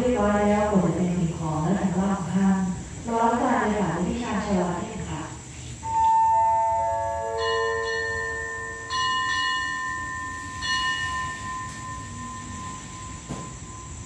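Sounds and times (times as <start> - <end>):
station chime descending tones: 5.8 - 14.0
bell strikes ringing: 5.9 - 14.0.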